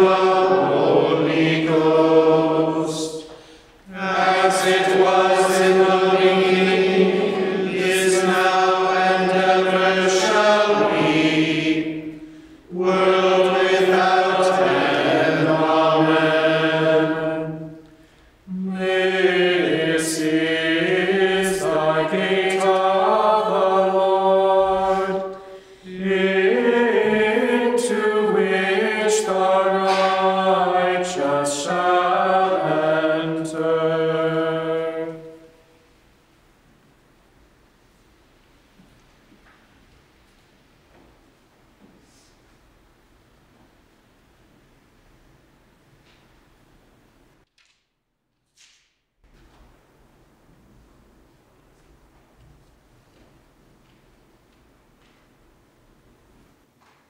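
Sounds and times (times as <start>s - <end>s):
voices chanting in unison: 0.0s - 35.6s.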